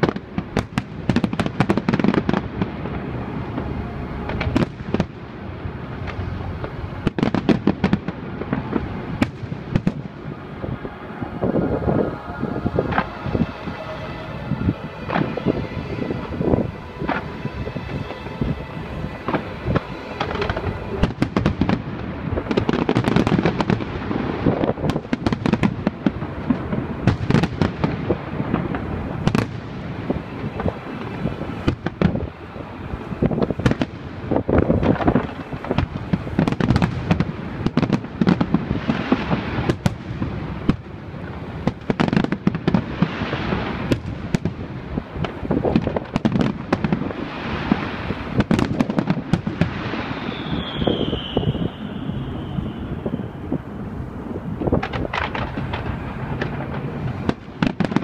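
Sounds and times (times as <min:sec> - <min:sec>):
fireworks bursting: 0:00.0 - 0:58.0.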